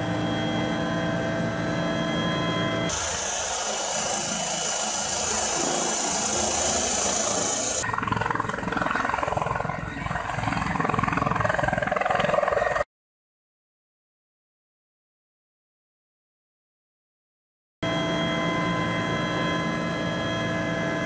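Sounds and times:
helicopter engine drone in cockpit: 0.0 - 12.9, 17.8 - 21.0
helicopter flying low past: 0.0 - 12.9, 17.8 - 21.0
helicopter turbine whine: 0.0 - 12.9, 17.8 - 21.0.

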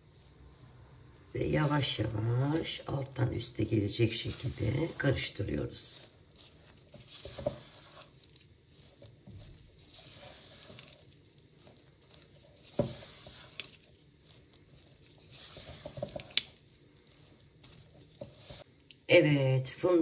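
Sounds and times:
spatula scraping metal bowl: 0.0 - 18.7
spatula knocking bowl: 11.6 - 13.8, 15.3 - 16.6.

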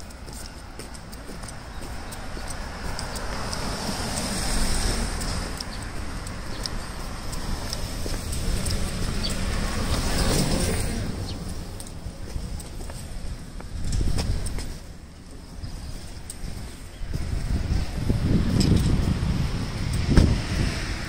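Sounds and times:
vehicles passing: 0.0 - 21.0.

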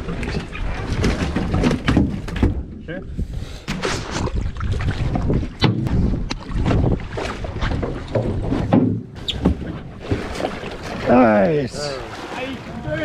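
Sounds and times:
low rumble of wind and water: 0.0 - 13.0
knocks and thuds on boat deck: 0.9 - 2.8, 5.0 - 10.5.

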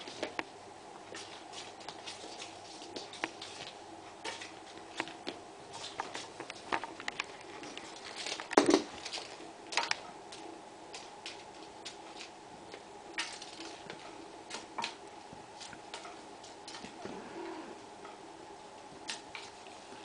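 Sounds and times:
kitten paws tapping on wooden floor: 1.1 - 17.0.

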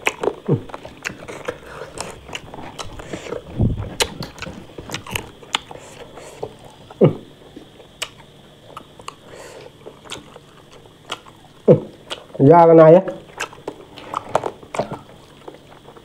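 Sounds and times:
person chewing food: 0.0 - 12.4, 13.2 - 16.0.

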